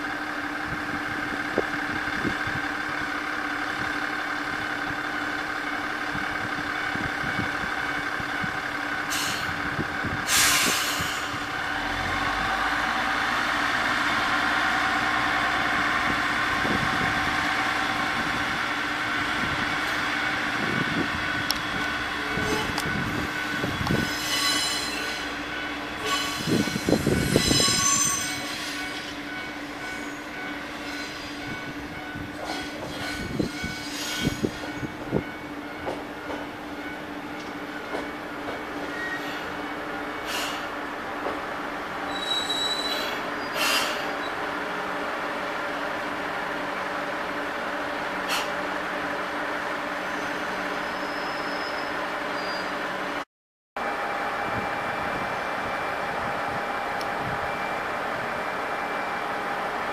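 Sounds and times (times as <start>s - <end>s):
diesel railcar engine: 0.0s - 53.2s, 53.8s - 59.9s
train wheels squealing: 10.3s - 12.4s, 22.2s - 31.7s, 32.4s - 35.3s, 38.7s - 39.6s, 40.2s - 40.7s, 42.0s - 44.4s, 50.0s - 52.9s
train wheels clunking: 21.4s - 41.5s.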